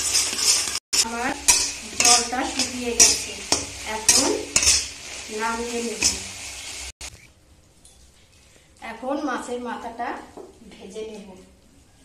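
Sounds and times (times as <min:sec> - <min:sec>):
metal spatula scraping pan: 0:00.0 - 0:06.9
steady hiss: 0:00.0 - 0:07.2.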